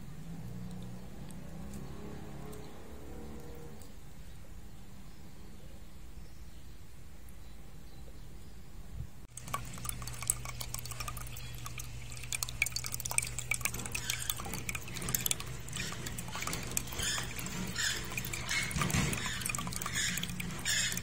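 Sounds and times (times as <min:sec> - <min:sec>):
fountain water splashing into basin: 0:09.3 - 0:21.0
low steady hum: 0:09.3 - 0:21.0.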